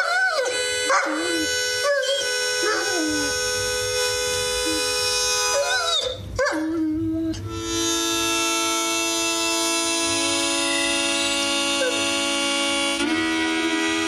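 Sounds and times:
dog howling: 0.0s - 3.3s, 5.5s - 7.4s
held musical notes: 0.0s - 14.0s.

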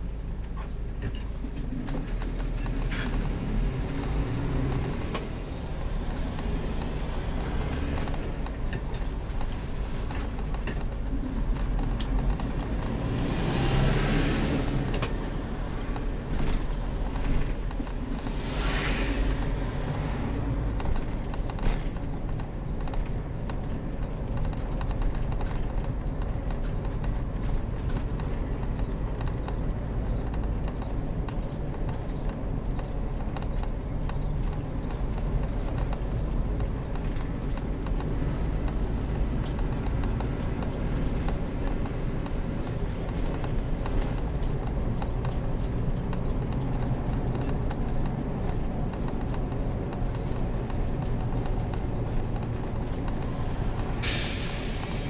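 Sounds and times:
motorhome engine running low: 0.0s - 55.0s
short hisses: 18.4s - 19.4s, 54.0s - 55.0s
small clicks and rattles: 20.7s - 54.0s.

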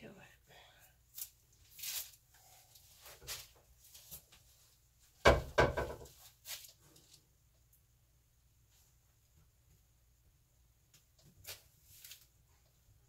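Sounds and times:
soft rustles: 1.2s - 5.2s, 6.1s - 7.3s, 11.3s - 12.8s
loud knock: 5.2s - 6.0s.

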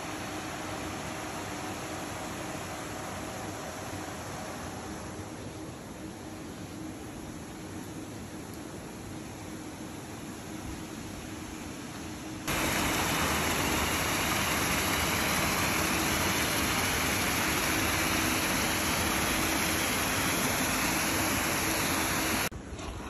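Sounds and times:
aerators churning water: 12.5s - 23.0s.

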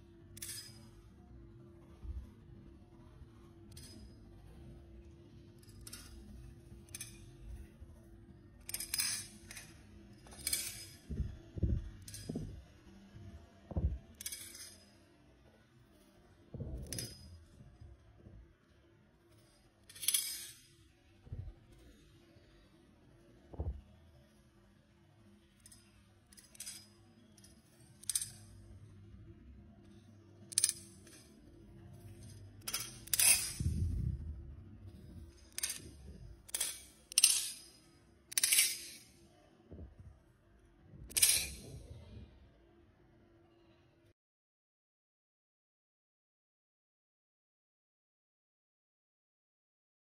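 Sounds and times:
metal knife parts clinking: 0.4s - 1.0s, 3.7s - 4.2s, 5.6s - 7.7s, 8.6s - 11.2s, 13.8s - 15.0s, 16.8s - 17.5s, 19.8s - 20.8s, 25.6s - 28.6s, 30.5s - 31.4s, 32.0s - 34.0s, 35.2s - 39.2s, 41.1s - 41.9s
dull low thumps: 11.1s - 14.2s, 16.5s - 16.9s, 23.5s - 23.9s, 33.6s - 35.3s.

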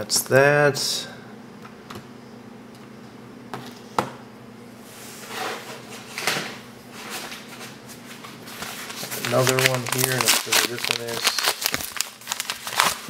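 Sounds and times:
cards scraping and rustling: 8.5s - 13.0s.

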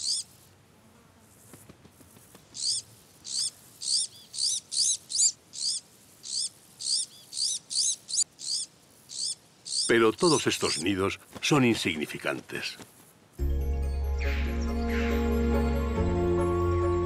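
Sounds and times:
nestlings begging calls: 0.0s - 0.3s, 2.6s - 11.0s.

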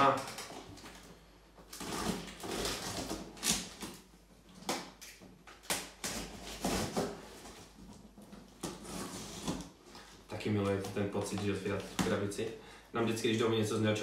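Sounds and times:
knife cutting tape and cardboard: 1.7s - 4.0s, 4.6s - 7.7s, 8.5s - 9.8s.

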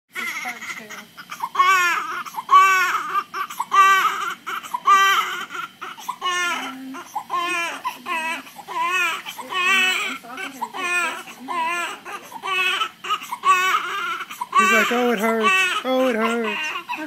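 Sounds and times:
newborn baby crying: 0.1s - 17.0s.

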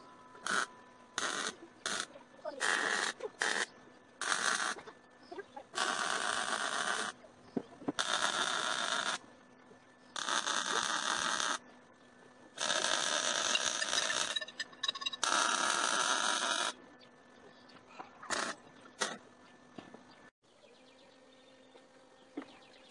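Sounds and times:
welding arc crackling: 0.0s - 4.8s, 5.7s - 7.2s, 7.9s - 9.2s, 10.2s - 11.6s, 12.6s - 16.8s, 18.3s - 19.2s.

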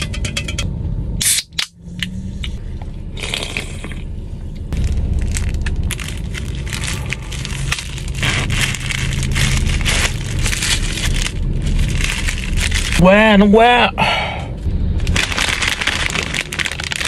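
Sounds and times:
plastic wrapper crinkling: 4.8s - 13.0s, 15.1s - 17.0s.

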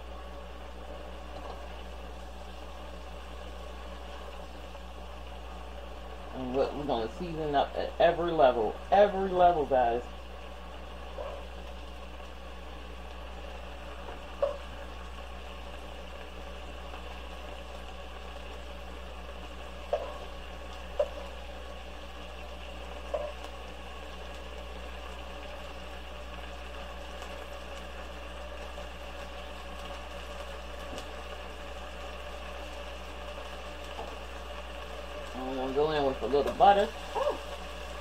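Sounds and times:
chicken sizzling in a pot: 0.0s - 38.0s
steady hum: 0.0s - 38.0s.

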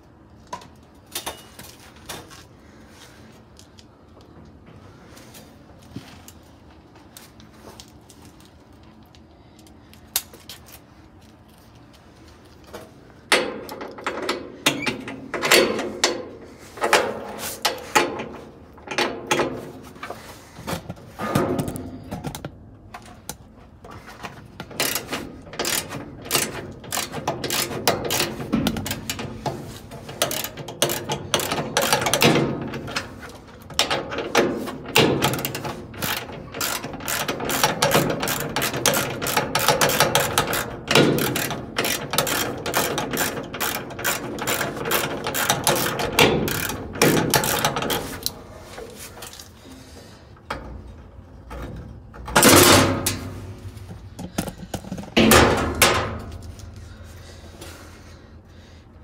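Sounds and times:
metal parts clanking and rattling: 0.5s - 2.5s, 12.6s - 58.1s.

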